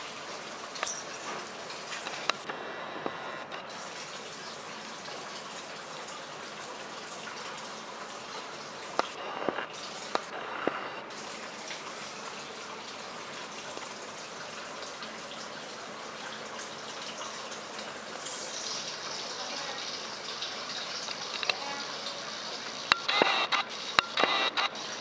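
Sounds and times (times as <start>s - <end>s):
sharp clicks: 22.9s - 24.7s.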